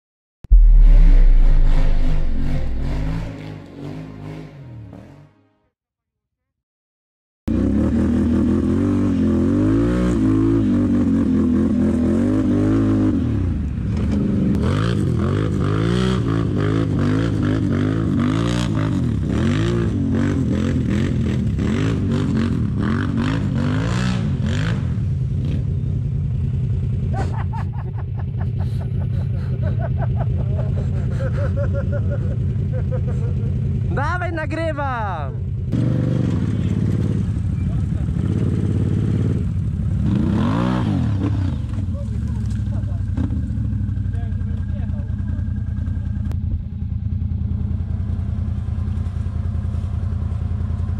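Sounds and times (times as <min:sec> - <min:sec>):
quad bike engines revving: 0:07.5 - 0:34.1, 0:35.3 - 0:46.3.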